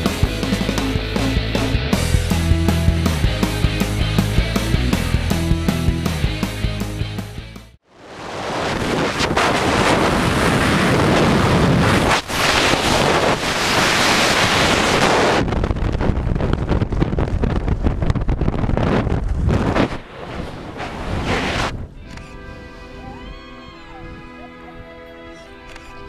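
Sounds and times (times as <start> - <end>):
wind blasting across microphone: 7.9 - 23.2.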